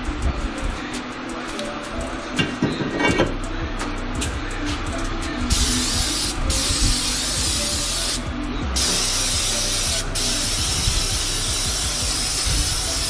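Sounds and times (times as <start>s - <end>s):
aerosol spray hissing: 5.5s - 8.2s, 8.8s - 13.0s.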